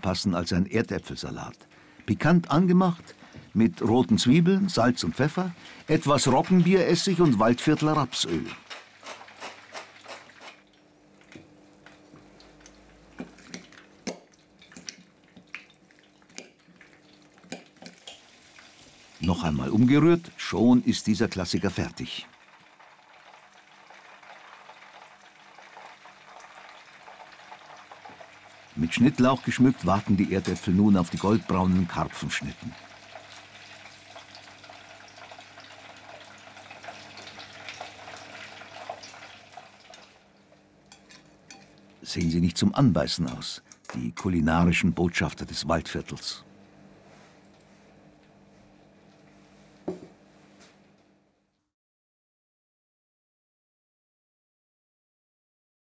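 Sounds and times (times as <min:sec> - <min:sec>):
faint kitchen hum: 0:00.0 - 0:51.7
fish sizzling in frying pan: 0:08.6 - 0:10.8, 0:17.0 - 0:19.2, 0:22.3 - 0:28.8, 0:32.7 - 0:40.3.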